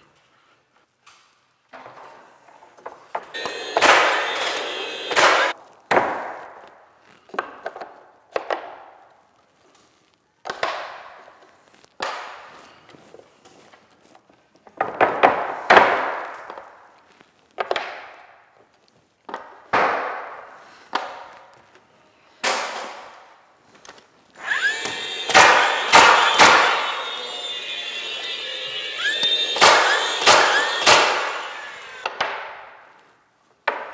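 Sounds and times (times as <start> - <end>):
nail gun firing into wood: 3.8 - 6.4, 24.6 - 26.9, 29.2 - 32.6.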